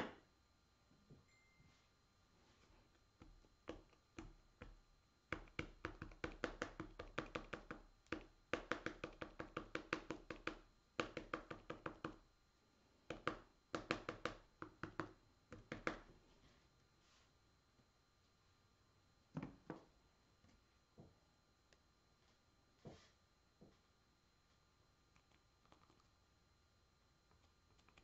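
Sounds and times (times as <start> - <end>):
tool tapping on wax painting: 3.2 - 12.2, 13.0 - 16.1.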